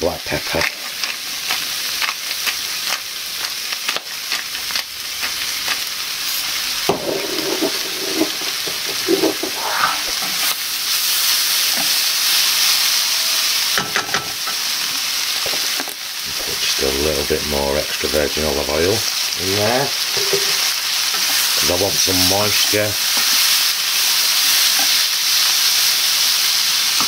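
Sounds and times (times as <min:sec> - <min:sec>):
food sizzling in a pan: 0:00.0 - 0:27.0
wooden spatula scraping a pan: 0:07.2 - 0:10.6.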